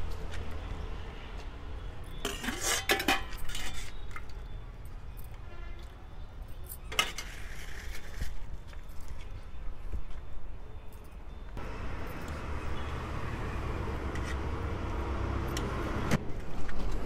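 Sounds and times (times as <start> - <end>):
ladle clinking against metal pots: 2.2 - 3.7.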